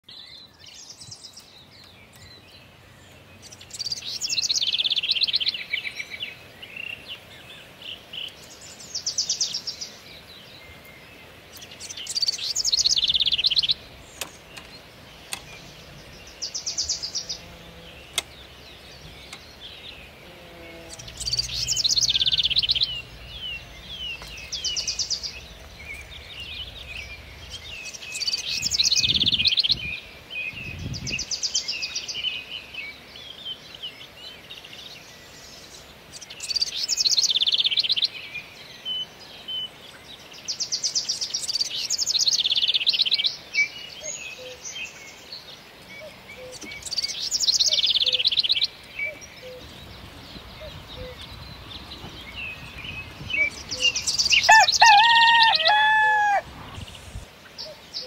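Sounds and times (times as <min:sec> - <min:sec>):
finch twittering and trilling: 0:11.5 - 0:20.2, 0:20.9 - 0:32.9, 0:45.9 - 0:58.0.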